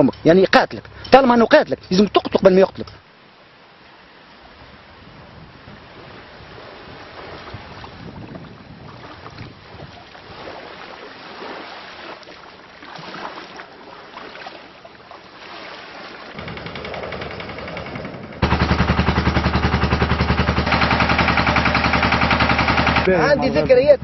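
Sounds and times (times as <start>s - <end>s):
wind on microphone: 4.5s - 10.8s
motor running with rapid pulse: 16.4s - 23.1s.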